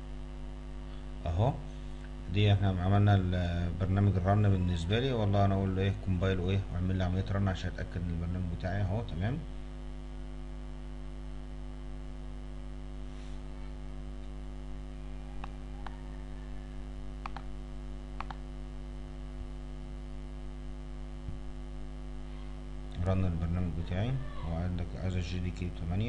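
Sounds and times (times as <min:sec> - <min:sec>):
electrical mains hum: 0:00.0 - 0:26.0
computer mouse clicks: 0:17.2 - 0:17.5, 0:18.2 - 0:18.4.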